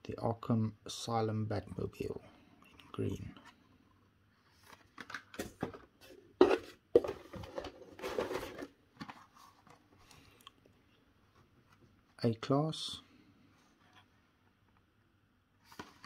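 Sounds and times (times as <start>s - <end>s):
cardboard and plastic crinkling: 4.5s - 10.0s.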